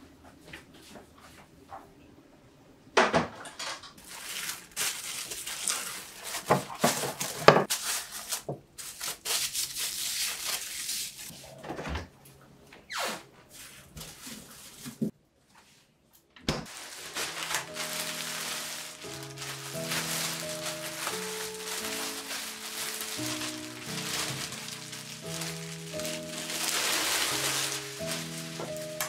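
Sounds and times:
cling wrap crinkling and snapping: 4.0 - 11.3, 16.7 - 29.0.

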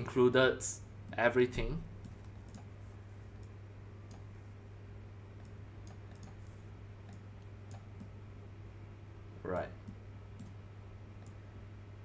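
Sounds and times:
low electrical hum: 0.0 - 12.0
mouse and keyboard clicks: 5.4 - 8.1.

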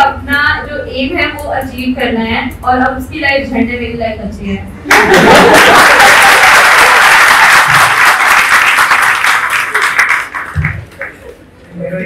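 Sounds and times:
audience applause: 4.9 - 11.3.

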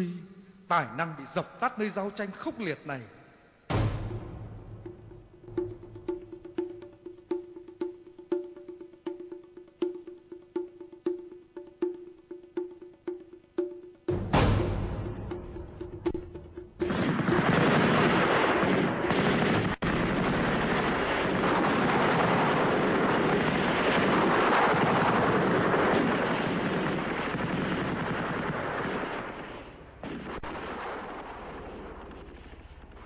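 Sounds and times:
explosions: 3.7 - 5.0, 16.8 - 33.0
gunfire: 16.8 - 32.8.

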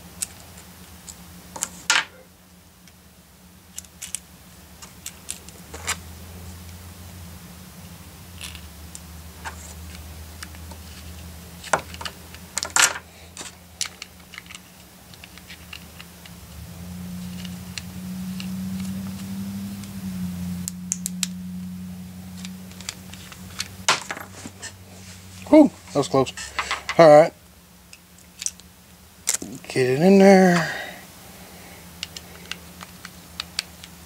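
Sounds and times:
steady low hum: 0.0 - 34.0
small parts clicking and tapping: 0.1 - 2.1, 3.7 - 6.0, 8.4 - 16.5, 17.2 - 20.0, 20.6 - 21.4, 22.4 - 24.3, 26.3 - 27.0, 27.9 - 29.5, 31.9 - 34.0.

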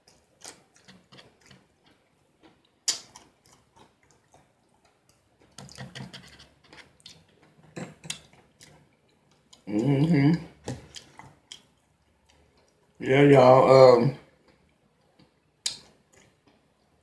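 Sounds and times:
chewing with wet mouth clicks: 0.0 - 5.8, 10.7 - 12.9, 14.4 - 16.6.

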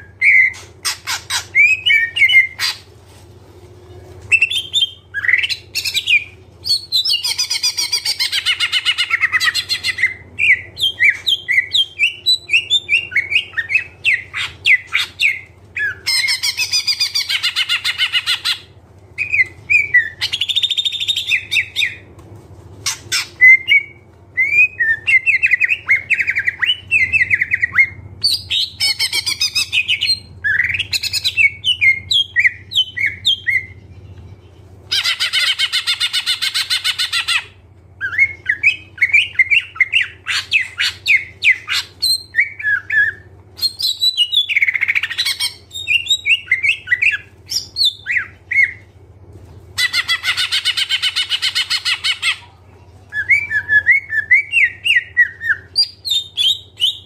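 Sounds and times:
bird chirps and whistles: 34.9 - 48.8.

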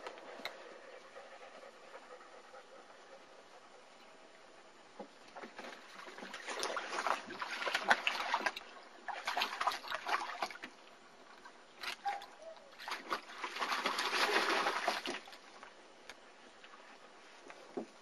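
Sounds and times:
water splashing in a wading pool: 5.4 - 15.6.

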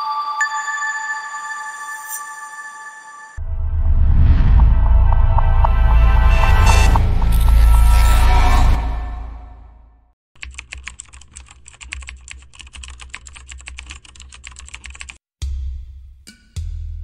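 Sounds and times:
loud low music beats: 3.4 - 7.8, 15.4 - 17.0
keyboard typing clicks: 10.4 - 15.2.

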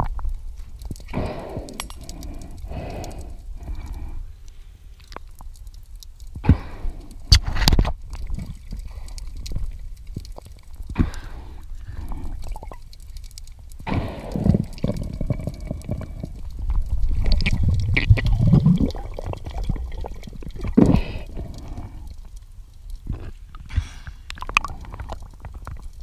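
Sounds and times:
muffled underwater gurgling: 13.8 - 22.1.

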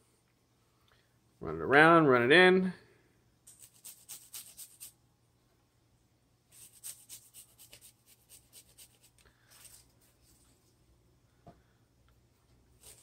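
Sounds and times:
garlic grating rasps: 3.5 - 5.0, 6.5 - 9.3.

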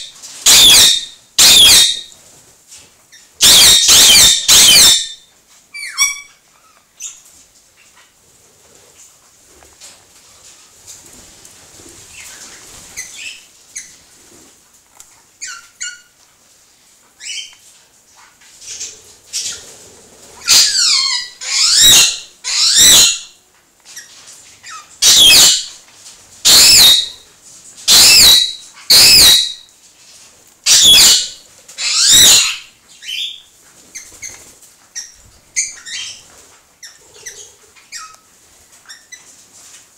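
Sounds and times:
parrots calling loudly: 0.0 - 2.1, 3.4 - 5.2, 5.8 - 6.8, 20.4 - 23.3, 24.6 - 25.8, 26.4 - 27.2, 27.9 - 29.7, 30.7 - 33.4
parrots chirping softly: 0.0 - 11.2, 11.8 - 16.3, 17.0 - 39.8.

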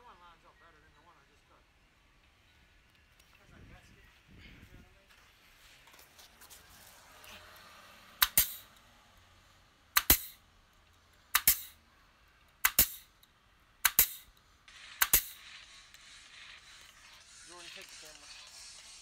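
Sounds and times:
nail gun firing: 8.2 - 8.7, 10.0 - 10.4, 11.3 - 11.8, 12.6 - 13.1, 13.8 - 14.3, 15.0 - 15.4.

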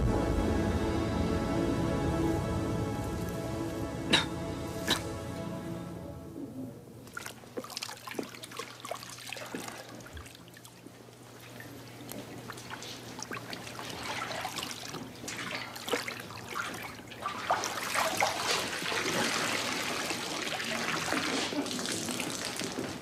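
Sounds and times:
water trickling and splashing: 7.0 - 23.0.

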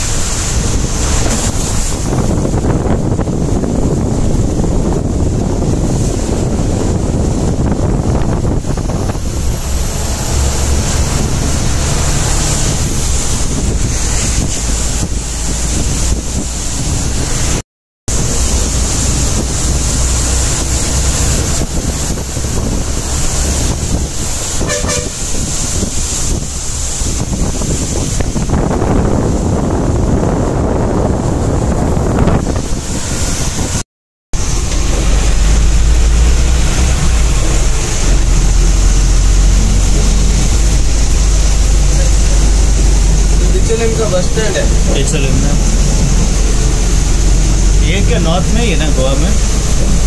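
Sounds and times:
wind rushing over microphone: 0.0 - 33.8, 34.4 - 50.0
bus rumble: 0.0 - 50.0
vehicle horn toot: 24.6 - 25.2.

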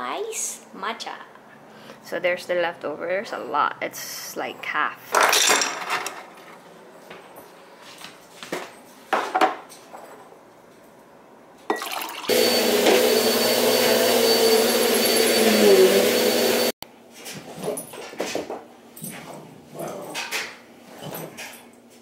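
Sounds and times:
vacuum cleaner running: 12.2 - 16.8.

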